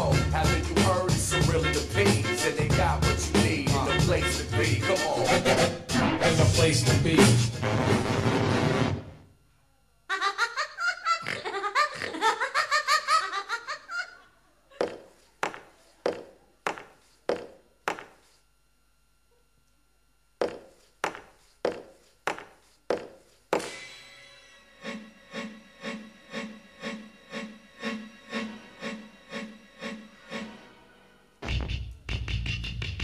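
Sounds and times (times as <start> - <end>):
laughter: 10.1 - 14.8.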